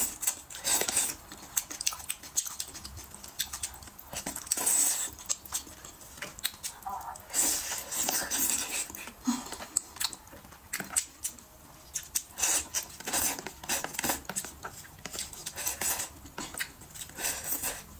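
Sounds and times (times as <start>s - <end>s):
wet slurping and chewing: 0.0s - 17.9s.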